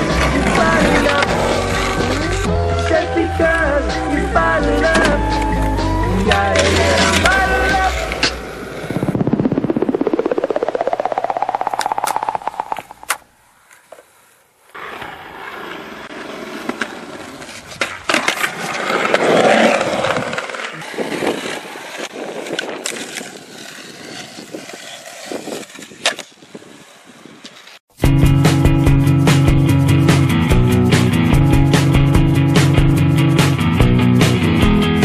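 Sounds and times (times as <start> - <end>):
skateboard wheels rolling on concrete: 0.0 - 35.0
skateboard clacking on ground: 11.0 - 14.1.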